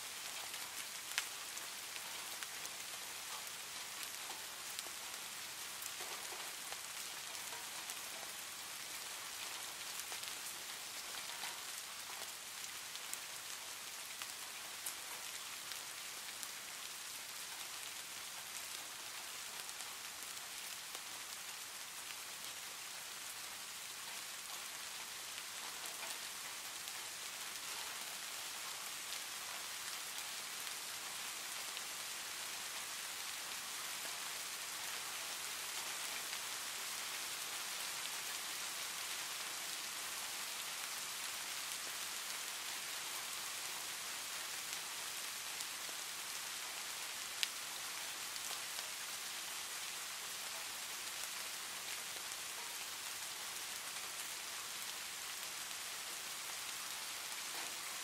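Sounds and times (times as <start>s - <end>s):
steady rain: 0.0s - 58.0s
faint ticks: 5.8s - 8.4s, 9.4s - 12.3s, 25.4s - 29.9s, 57.5s - 57.8s.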